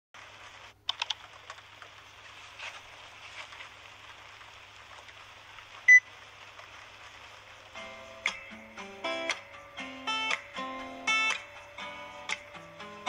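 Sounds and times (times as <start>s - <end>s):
steady hiss: 0.2s - 13.0s
sharp clicks: 0.8s - 1.9s.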